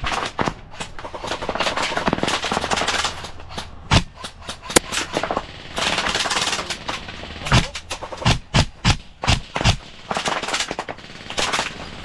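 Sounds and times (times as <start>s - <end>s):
airsoft gun full-auto bursts: 4.7s - 12.0s.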